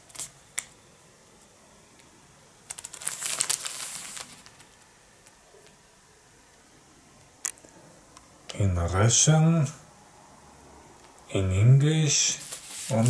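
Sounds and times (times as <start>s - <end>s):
paper rustling and crinkling: 2.7s - 5.4s, 12.4s - 13.0s.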